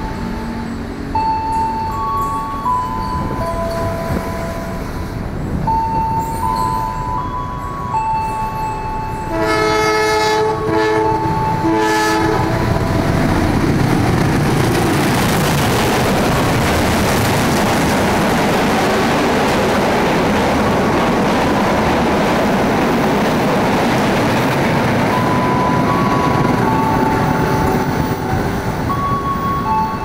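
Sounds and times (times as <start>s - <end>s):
trains rushing on rails: 0.0s - 30.0s
train horn blasts: 9.3s - 13.0s.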